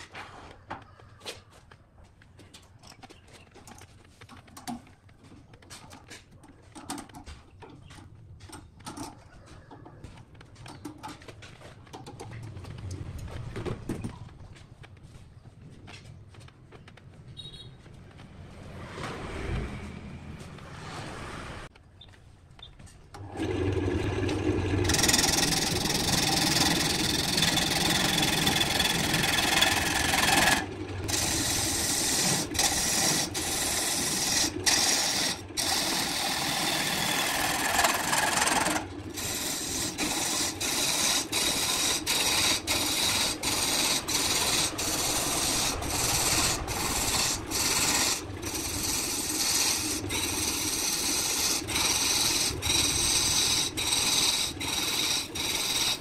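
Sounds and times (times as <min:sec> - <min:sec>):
gouge shaving wood on lathe: 0:23.2 - 0:56.0
lathe humming: 0:23.2 - 0:56.0.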